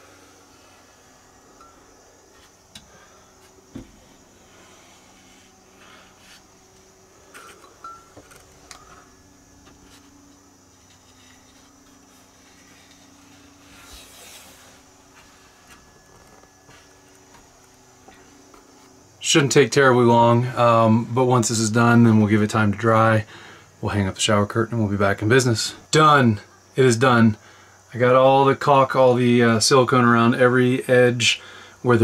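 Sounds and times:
soft rustle: 0.0s - 19.0s
faint steady hum: 0.0s - 32.0s.

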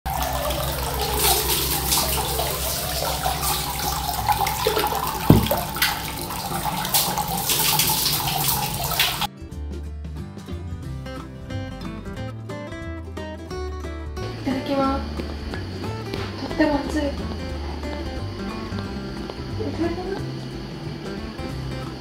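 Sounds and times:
water running into bath: 0.0s - 9.3s, 14.3s - 22.0s
background music: 0.1s - 22.0s
knock: 5.3s - 5.8s.

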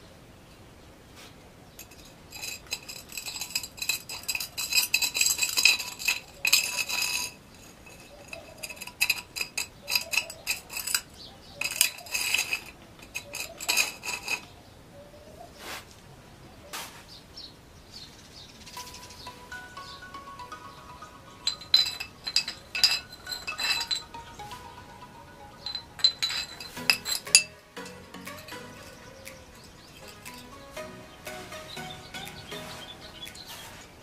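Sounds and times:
metal rod tapping glass bottle: 1.8s - 14.4s, 21.4s - 24.4s, 25.6s - 30.6s.

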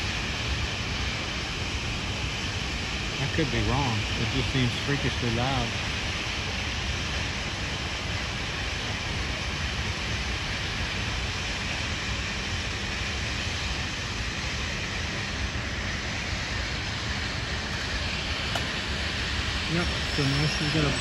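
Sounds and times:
loud machinery running: 0.1s - 6.6s, 12.7s - 21.0s.

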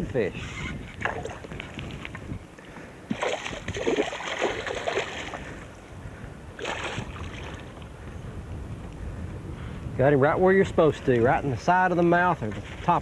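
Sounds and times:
fish splashing at water surface: 3.1s - 5.5s, 6.6s - 7.7s.

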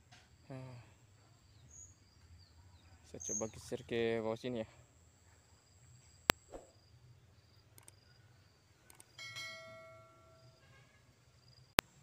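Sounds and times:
faint high insect trilling: 0.4s - 11.8s
sharp mouse click: 7.8s - 8.0s, 8.9s - 9.1s
bell chime: 9.2s - 10.6s.

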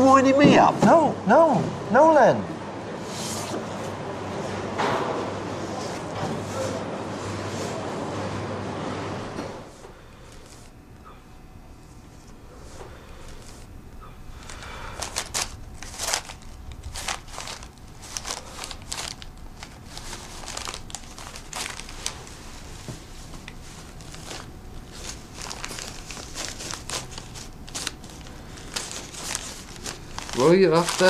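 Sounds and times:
paper or plastic crinkling: 14.3s - 31.0s.

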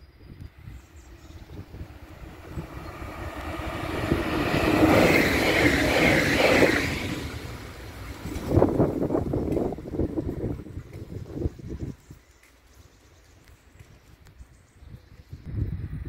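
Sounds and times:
train passing at speed: 0.1s - 11.6s.

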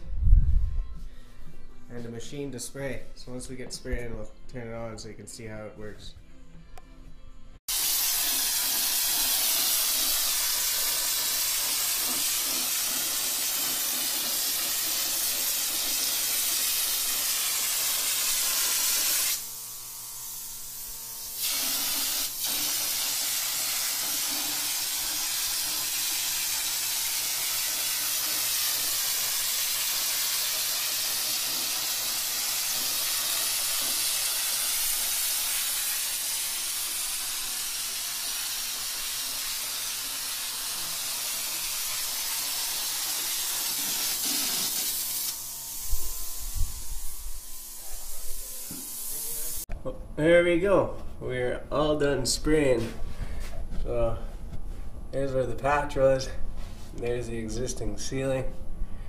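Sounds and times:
texture gun spraying hiss: 7.7s - 49.7s.

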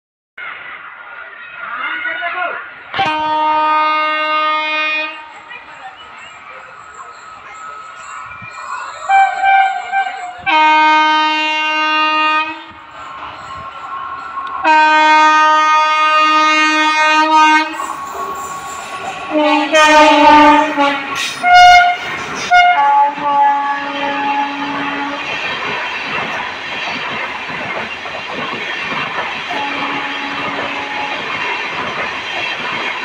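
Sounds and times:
train coaches rumbling past: 0.4s - 33.0s
locomotive horn blasts: 3.0s - 5.3s, 9.1s - 12.9s, 14.6s - 18.4s, 19.3s - 25.2s, 29.5s - 31.2s.

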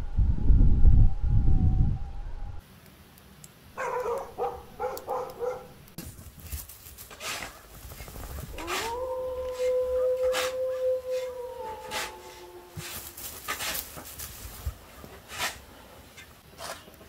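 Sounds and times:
young dog yelping: 3.8s - 5.8s
dog howling: 8.5s - 13.2s.

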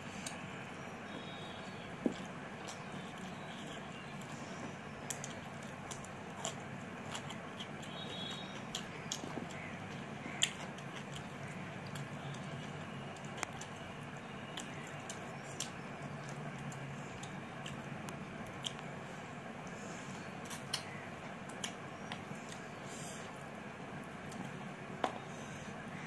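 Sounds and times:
steady low hum: 0.0s - 26.0s
chewing clicks and smacks: 1.6s - 18.9s, 20.1s - 22.6s.

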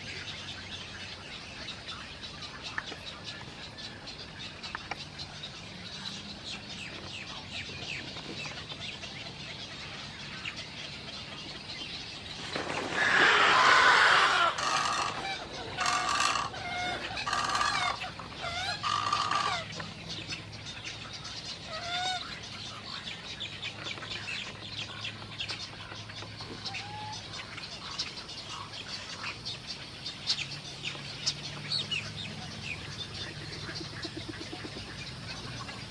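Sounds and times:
egrets squawking: 13.0s - 19.7s.

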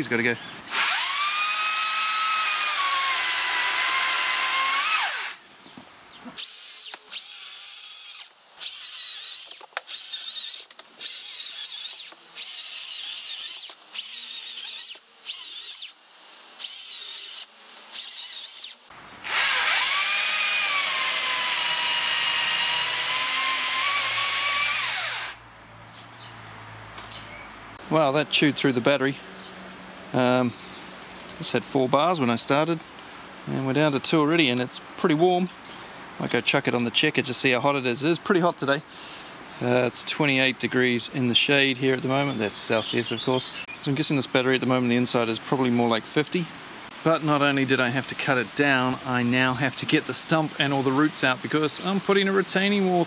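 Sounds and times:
chainsaw cutting wood: 0.7s - 5.4s, 6.4s - 16.0s, 16.6s - 25.4s.

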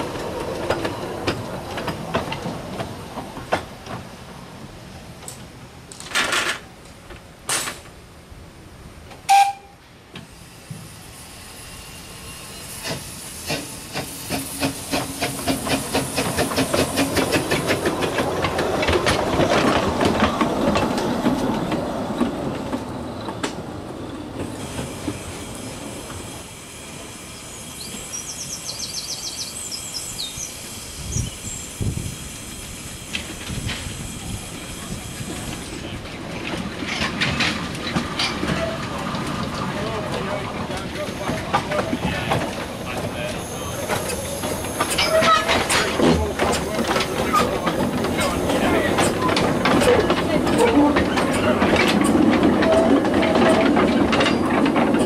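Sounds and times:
steam locomotive passing: 0.0s - 55.0s
wheels clattering over rail joints: 5.2s - 8.0s, 12.7s - 23.7s, 32.9s - 55.0s
steady steam hiss: 9.8s - 22.2s, 22.8s - 38.2s, 38.8s - 52.4s.

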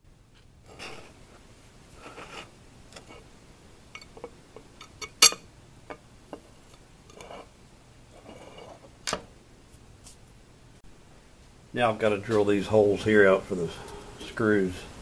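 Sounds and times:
soft scrapes: 0.7s - 3.3s, 7.1s - 9.0s.

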